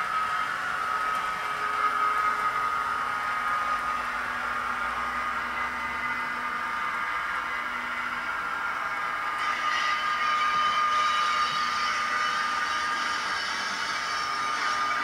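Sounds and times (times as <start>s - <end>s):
high wheel flange squeal: 9.2s - 15.0s.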